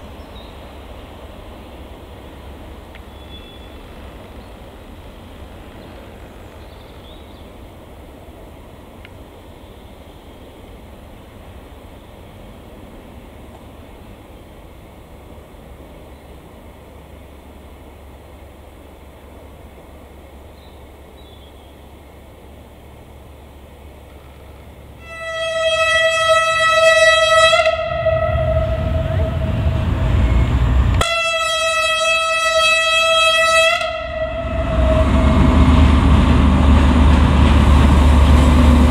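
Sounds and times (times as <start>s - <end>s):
diesel locomotive engine running: 0.0s - 38.9s
train rumbling: 0.0s - 38.9s
locomotive horn blast: 25.0s - 36.1s.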